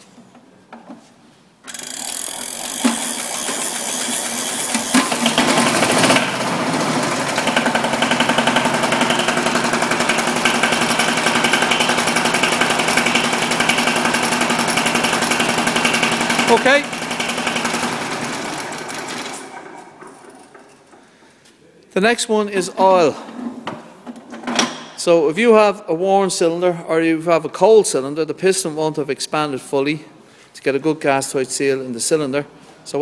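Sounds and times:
diesel engine hand-cranked and running: 1.7s - 21.0s.

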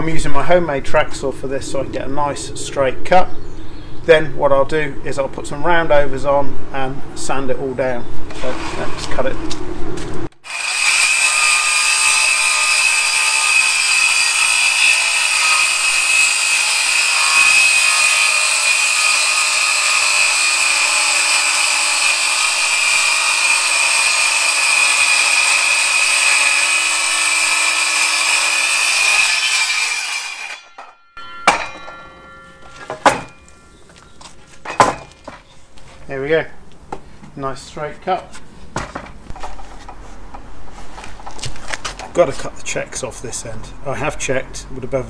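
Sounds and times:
saw cutting wood plank: 10.4s - 30.9s
knocks: 30.7s - 33.4s.

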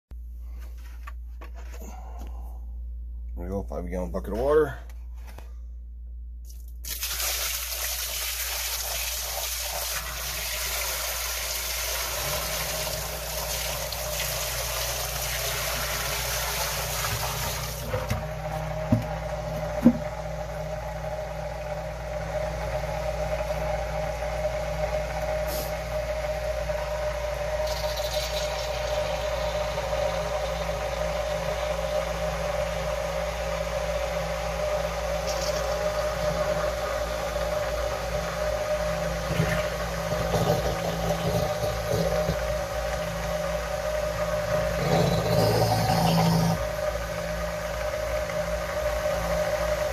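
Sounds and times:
sump pump humming: 4.4s - 49.9s
water pouring and splashing: 6.6s - 17.9s.

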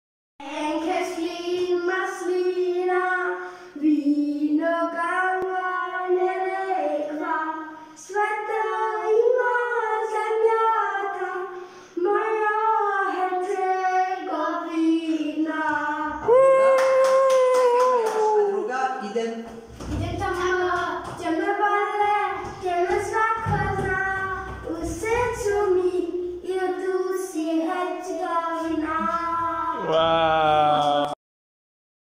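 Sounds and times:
high voice singing: 28.8s - 31.2s.

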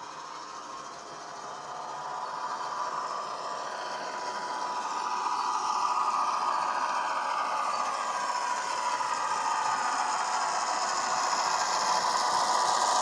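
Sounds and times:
diesel engine sound from small speaker: 0.0s - 13.0s.

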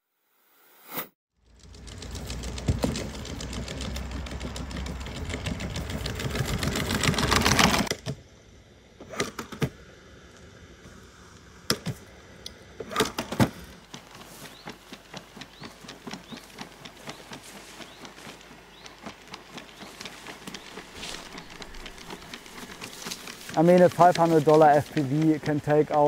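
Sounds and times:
scattered clicks: 13.9s - 26.0s.

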